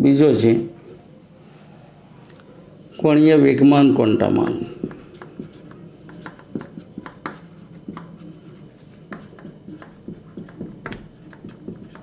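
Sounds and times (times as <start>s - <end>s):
marker writing on a whiteboard: 4.2s - 12.0s.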